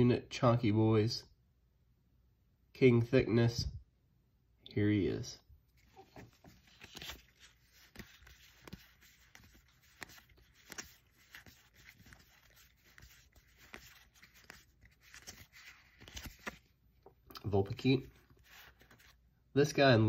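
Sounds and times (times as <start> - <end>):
trading cards sliding and clicking: 5.8 - 16.7.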